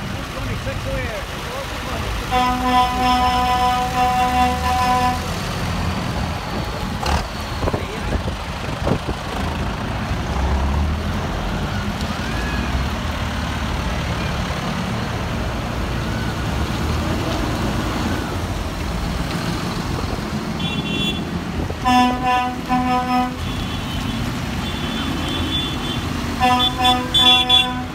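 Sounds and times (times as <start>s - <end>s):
tractor diesel engines passing: 0.0s - 27.9s
horn sounding: 2.2s - 5.4s, 20.6s - 27.9s.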